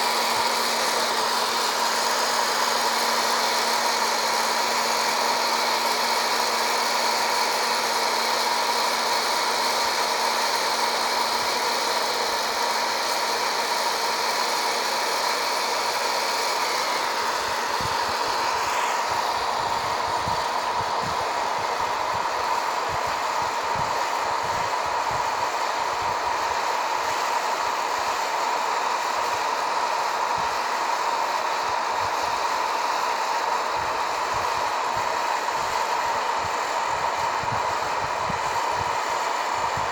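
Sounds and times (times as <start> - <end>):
coffee beans churning: 0.0 - 22.9
coffee roaster fan whining: 0.0 - 39.9.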